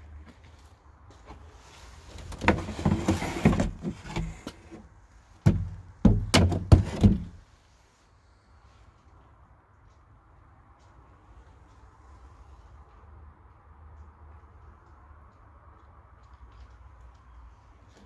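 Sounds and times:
scraping and rustling: 1.2 - 4.9
wood knocking against objects: 2.2 - 4.6, 5.4 - 7.4.

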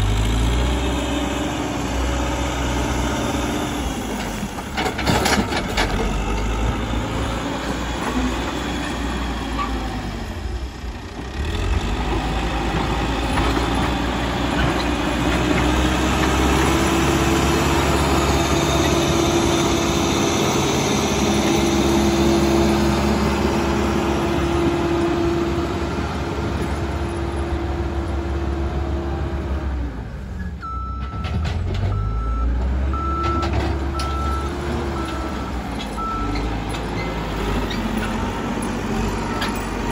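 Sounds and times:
diesel engine under load: 0.0 - 39.9
reversing alarm beeping: 30.6 - 37.2.

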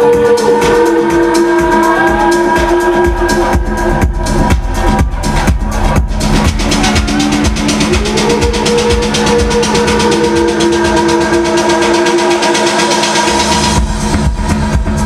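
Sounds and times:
loud techno music: 0.0 - 15.0.

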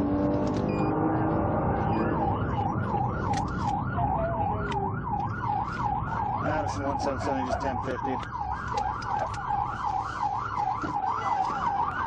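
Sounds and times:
police siren yelping: 0.6 - 12.0.

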